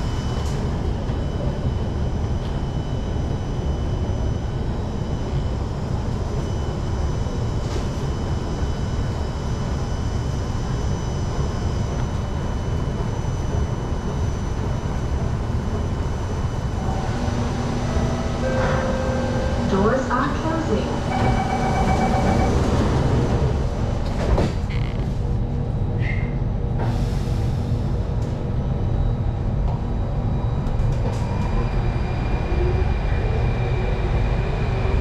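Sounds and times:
ventilation rumble and hum: 0:00.0 - 0:35.0
pitched tone: 0:16.8 - 0:22.7.

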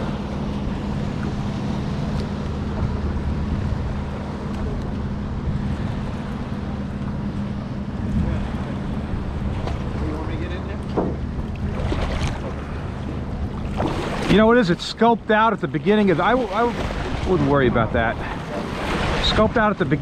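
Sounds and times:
boat engine humming: 0:00.0 - 0:20.0
water around boat: 0:00.0 - 0:20.0
wind noise on microphone: 0:07.9 - 0:09.7.

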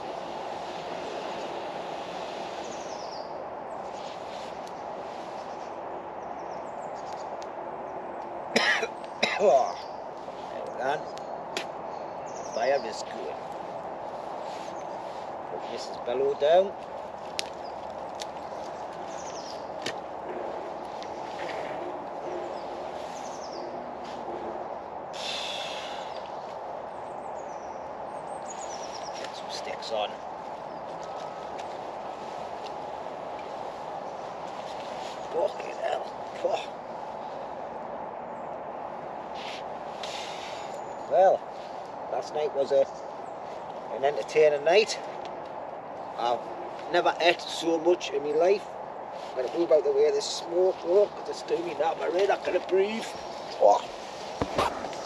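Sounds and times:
steady hiss: 0:00.0 - 0:05.8, 0:25.0 - 0:27.0, 0:39.3 - 0:42.8
rustle: 0:00.0 - 0:07.5, 0:08.1 - 0:55.0
birds calling: 0:00.0 - 0:55.0
steady rushing noise: 0:00.0 - 0:55.0
fire crackling: 0:16.8 - 0:27.0, 0:50.8 - 0:55.0.

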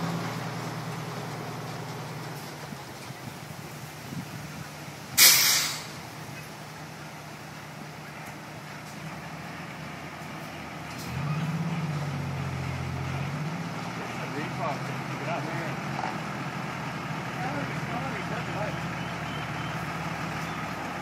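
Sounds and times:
diesel engine idling: 0:00.0 - 0:21.0
truck engine revving: 0:00.0 - 0:21.0
air brake hiss: 0:05.2 - 0:06.0.

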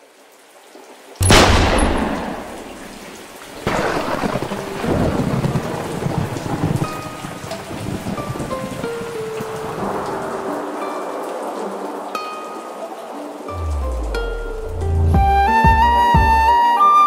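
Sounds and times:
rain: 0:00.0 - 0:17.0
thunder rumbling: 0:01.2 - 0:11.6.

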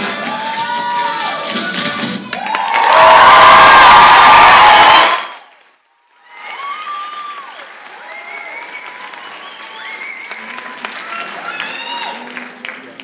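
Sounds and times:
audience applause: 0:02.3 - 0:13.0
high shouts and whoops: 0:02.4 - 0:05.3, 0:11.2 - 0:12.3.

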